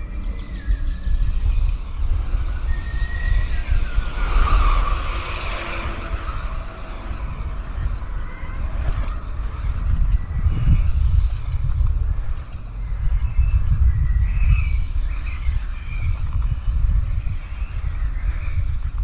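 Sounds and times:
road noise: 0.0 - 19.0
wind rumble on microphone: 0.0 - 19.0
vehicle passing: 1.1 - 11.0.

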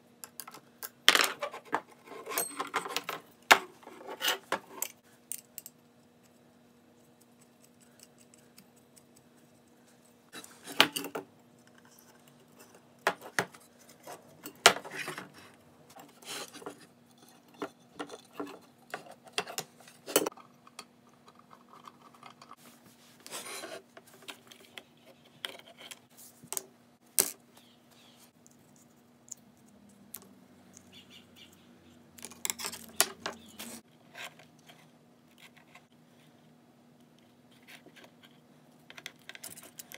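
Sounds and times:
metal lamp parts clinking: 2.2 - 3.2.

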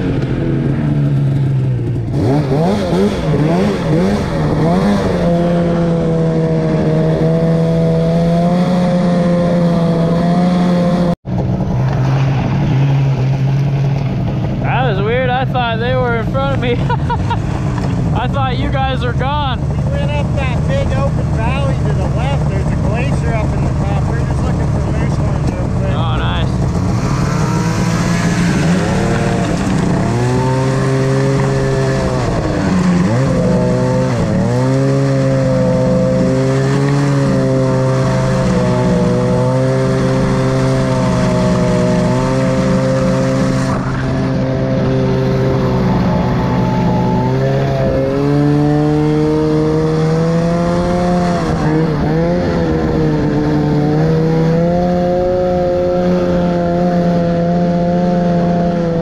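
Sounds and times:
snowmobile engine revving: 0.0 - 59.0.

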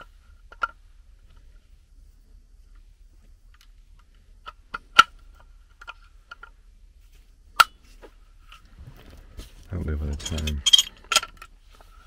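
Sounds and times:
wrench clinking on metal fitting: 10.1 - 11.3.

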